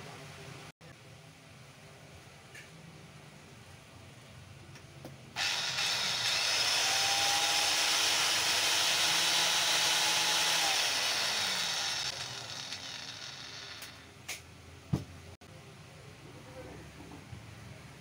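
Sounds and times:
electric motor high whir: 0:05.4 - 0:14.0.

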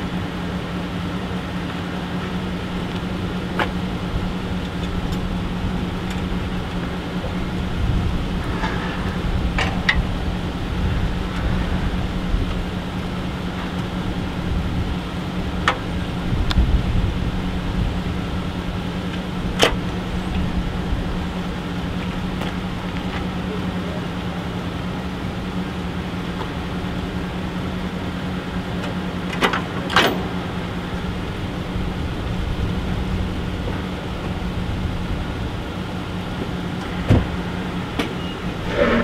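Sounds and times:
truck engine idling: 0:00.0 - 0:39.0.

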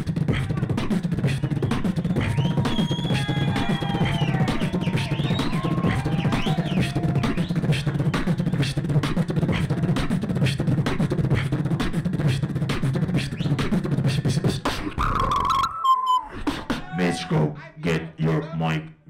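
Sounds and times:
low vocal bass: 0:00.0 - 0:15.2
beatboxing through a microphone: 0:00.0 - 0:19.0
higher held vocal tone: 0:16.2 - 0:17.5.

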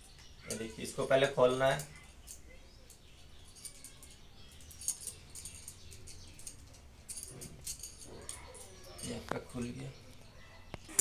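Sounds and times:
nut clicking and rattling on metal rod: 0:01.7 - 0:09.4.

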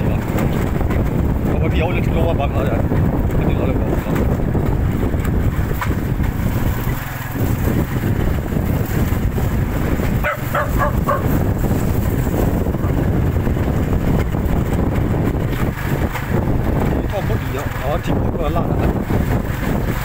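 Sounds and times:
wind rumbling on microphone: 0:00.0 - 0:20.0
dog barks: 0:10.2 - 0:11.4.

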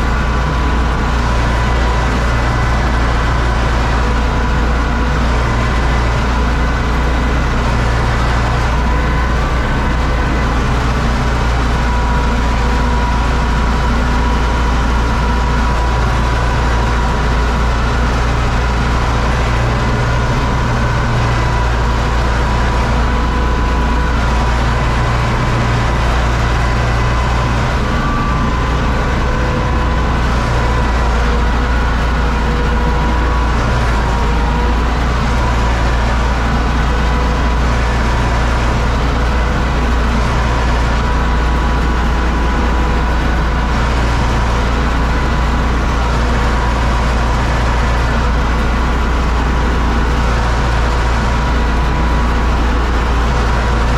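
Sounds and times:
high whine: 0:00.0 - 0:53.9
tractor diesel engine running: 0:00.0 - 0:53.9.

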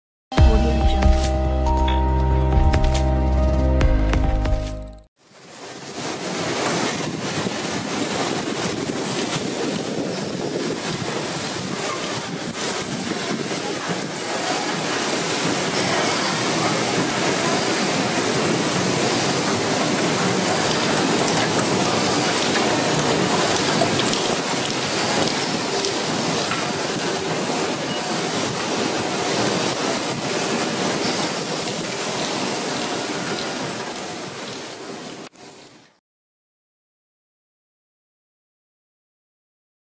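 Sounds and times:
factory machines running: 0:10.8 - 0:34.6.

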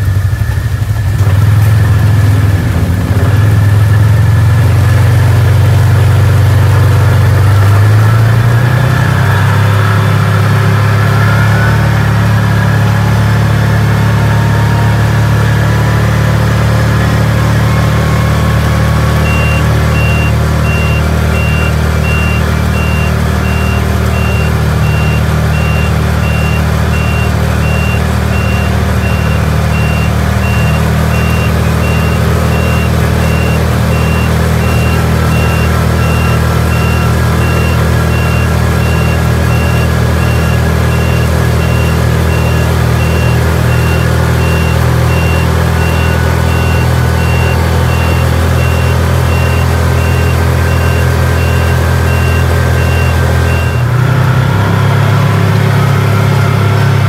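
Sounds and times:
vehicle engine drone: 0:00.0 - 0:57.0
repeating high-pitched beep: 0:19.2 - 0:53.9.

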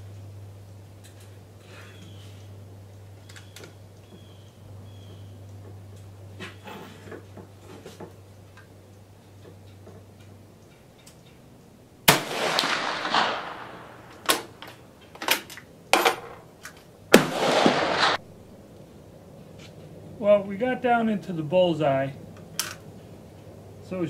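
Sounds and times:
rifle gunshot: 0:12.1 - 0:14.6, 0:17.1 - 0:18.2.

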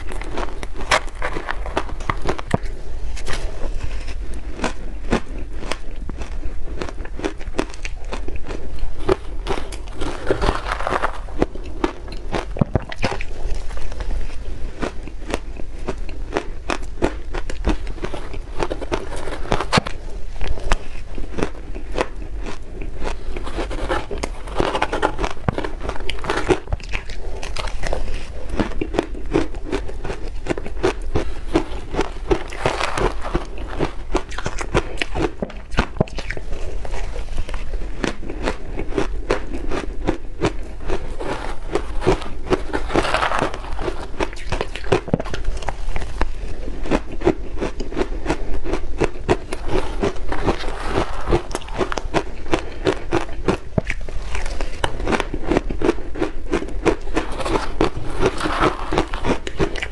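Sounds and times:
crunching shaved ice: 0:00.0 - 0:59.9.

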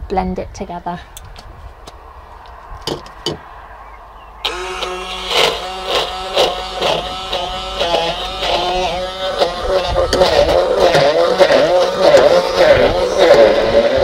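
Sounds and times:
stick blender motor whirring: 0:04.4 - 0:14.0.

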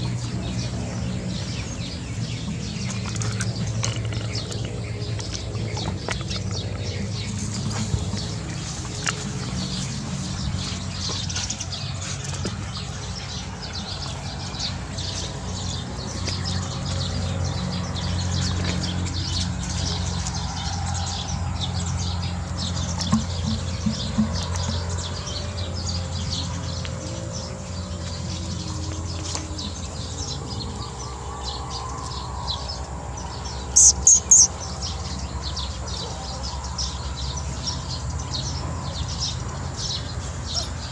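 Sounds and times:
birds chirping: 0:00.0 - 0:40.9
low even hum: 0:00.0 - 0:40.9.

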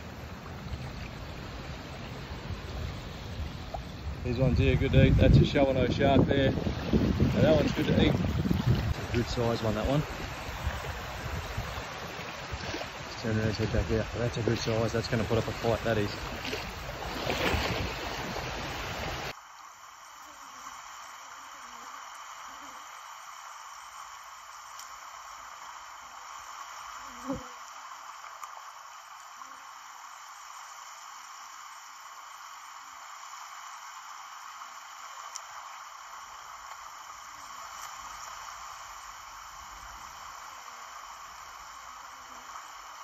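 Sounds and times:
faint steady hiss: 0:00.0 - 0:43.0
seawater sloshing and splashing: 0:06.6 - 0:13.2, 0:14.5 - 0:19.3
faint tick: 0:24.6 - 0:25.0, 0:28.2 - 0:28.6, 0:35.2 - 0:38.4.

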